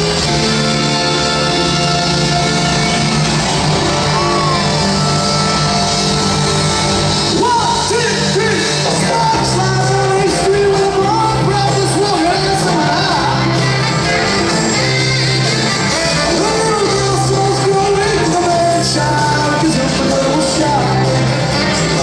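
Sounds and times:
rock band playing: 0.0s - 22.0s
man singing lead vocal: 7.3s - 13.7s, 16.1s - 22.0s.

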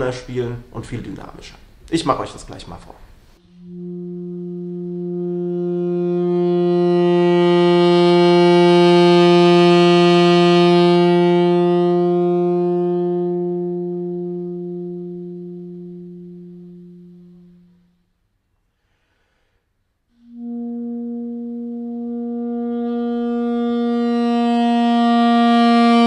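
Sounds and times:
saxophone long notes: 3.4s - 18.1s, 20.1s - 26.0s.

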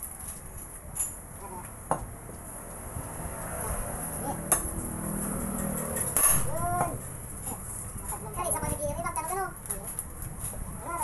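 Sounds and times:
metal tools clinking on concrete: 5.5s - 7.0s.

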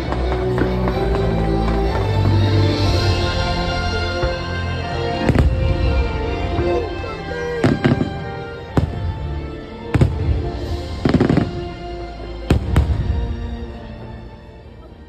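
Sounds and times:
fireworks bangs: 0.0s - 4.4s, 5.1s - 9.3s, 9.9s - 11.8s, 12.5s - 13.4s
show music: 0.0s - 15.0s.

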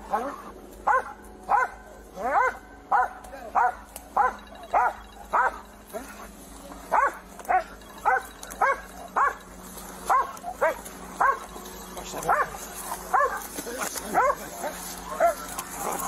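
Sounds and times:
dog barking: 0.0s - 6.2s, 6.9s - 9.4s, 10.0s - 11.6s, 12.2s - 16.0s.

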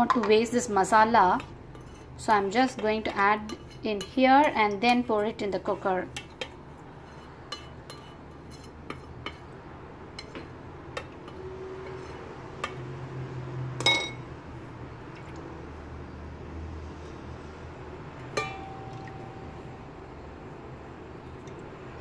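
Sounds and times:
spatula stirring in metal bowl: 0.0s - 12.9s
spatula clinking against metal: 6.2s - 9.5s, 18.4s - 19.5s.

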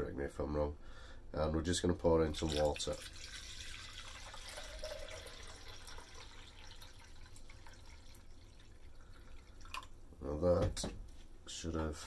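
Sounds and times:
water trickling into a beaker: 2.3s - 10.0s.

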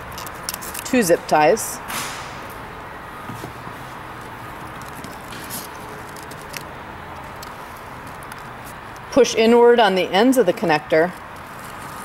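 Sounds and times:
steady low hum: 0.0s - 12.0s
plastic connector clicks and rustles: 4.7s - 9.1s.

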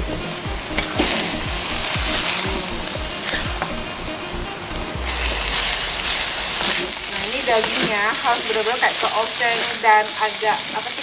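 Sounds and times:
meat sizzling in a wok: 0.0s - 4.4s, 5.0s - 11.0s
background music with steady beat: 0.0s - 8.3s.

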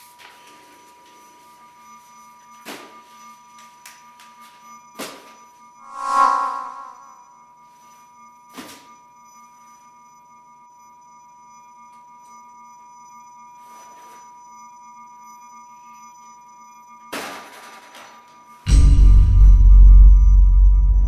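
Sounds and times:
faint electronic whine: 0.4s - 17.1s.

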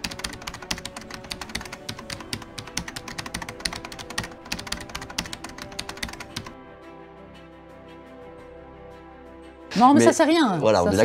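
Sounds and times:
keyboard typing clicks: 0.0s - 6.5s
soft background music: 0.0s - 11.0s.

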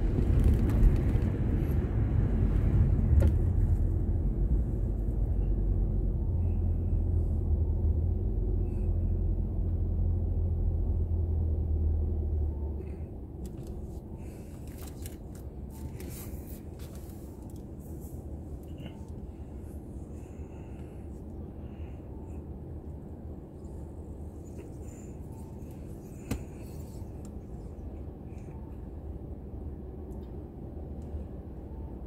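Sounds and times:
faint clicks and rustles: 0.0s - 1.9s, 13.4s - 19.3s
car road rumble: 0.0s - 32.0s.

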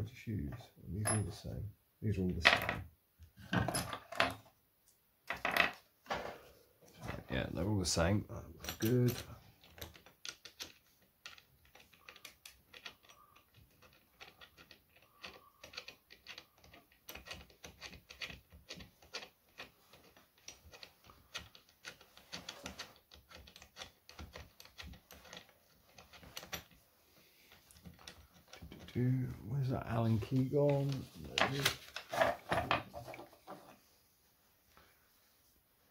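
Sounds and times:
metal parts clicking and tapping: 8.6s - 26.8s, 27.5s - 29.0s.

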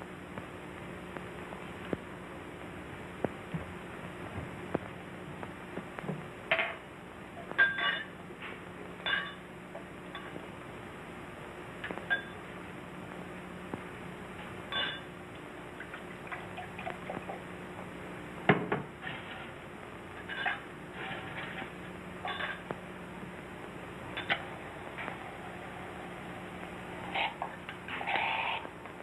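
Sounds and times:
film track hum and hiss: 0.0s - 29.0s
glasses and bottle clinking: 7.6s - 8.1s, 9.1s - 9.4s, 14.7s - 15.1s.

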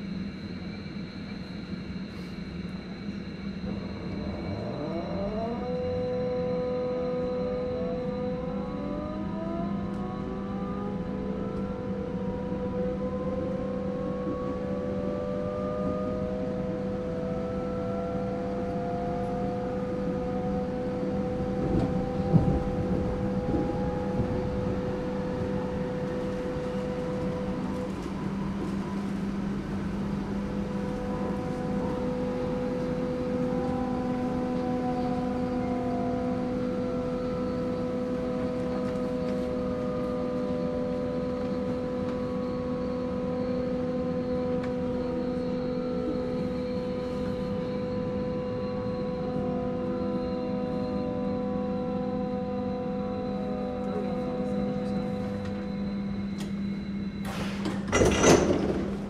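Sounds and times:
traction motors whining: 0.7s - 59.0s.

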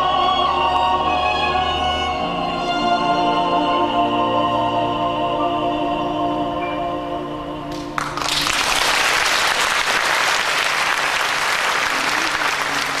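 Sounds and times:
male voices singing a chord: 0.0s - 7.9s
audience applause: 8.0s - 13.0s.

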